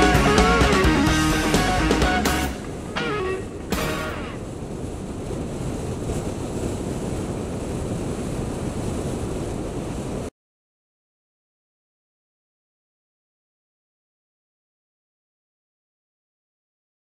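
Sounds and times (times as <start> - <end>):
wind rushing over microphone: 0.0 - 10.3.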